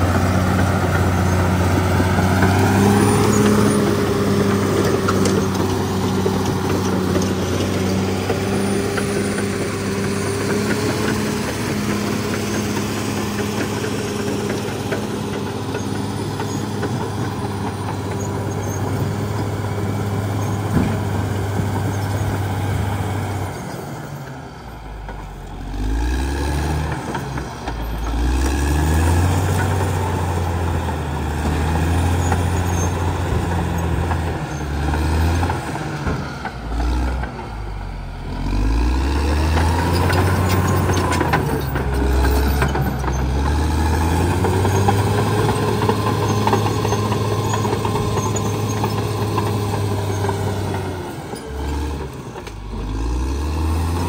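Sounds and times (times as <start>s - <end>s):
bulldozer diesel engine running: 0.0s - 54.0s.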